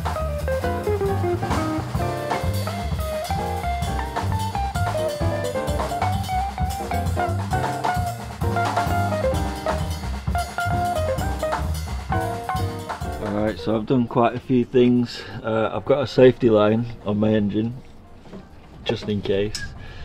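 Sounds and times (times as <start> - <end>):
jazz tune with drums and walking bass: 0.0 - 13.9.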